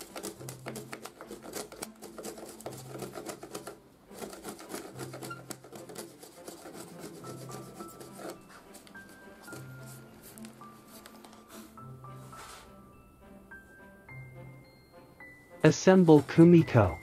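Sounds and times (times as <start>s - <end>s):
chisel cutting wood: 0.0s - 10.1s
faint background music: 0.0s - 17.0s.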